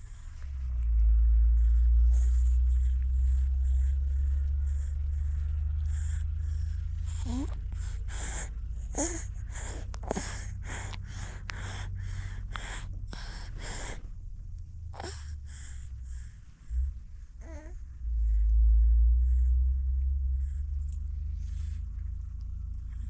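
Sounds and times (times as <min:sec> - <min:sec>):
low rumble: 0:00.0 - 0:23.0
infant breathy gasps: 0:01.6 - 0:14.2, 0:14.9 - 0:18.5
infant sucking and gulping: 0:05.9 - 0:14.1.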